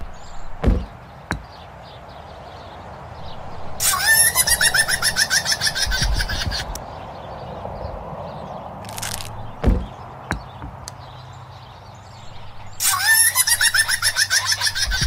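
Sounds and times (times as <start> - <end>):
nuts thudding onto car: 8.9 - 11.0.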